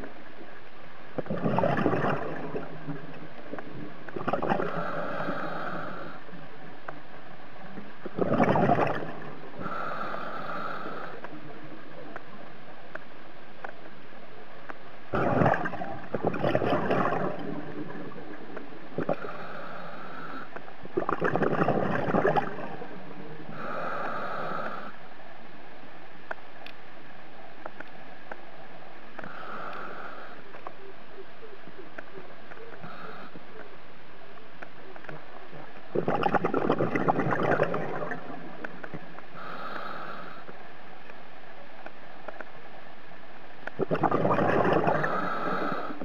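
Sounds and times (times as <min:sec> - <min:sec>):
exhaled bubbles rushing: 0:01.2 - 0:03.1, 0:03.8 - 0:05.4, 0:08.0 - 0:09.3, 0:15.1 - 0:18.2, 0:21.0 - 0:22.9, 0:35.9 - 0:38.5, 0:43.8 - 0:45.7.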